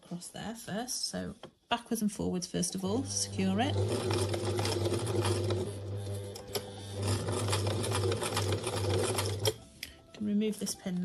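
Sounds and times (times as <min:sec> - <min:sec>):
sewing machine running: 0:03.0 - 0:09.6.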